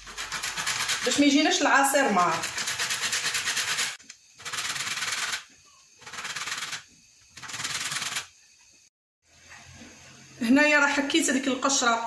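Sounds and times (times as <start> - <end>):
lemon rasping on plastic grater: 0.0 - 5.4.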